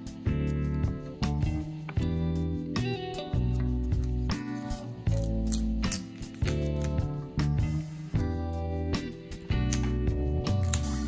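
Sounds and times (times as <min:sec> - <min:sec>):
plucked guitar tune: 0:00.3 - 0:07.3.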